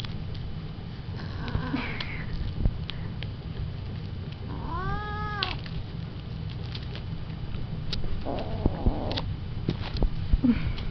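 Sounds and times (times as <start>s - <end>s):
cat meowing: 4.5s - 5.6s.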